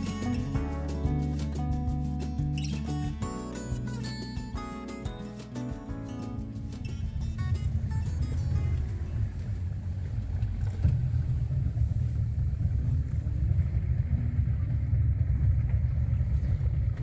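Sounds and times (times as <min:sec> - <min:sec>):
boat motor rumbling: 0:00.0 - 0:17.0.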